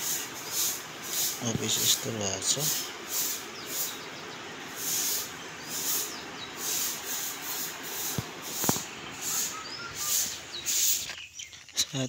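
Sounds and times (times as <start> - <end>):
footsteps: 6.7 - 12.0.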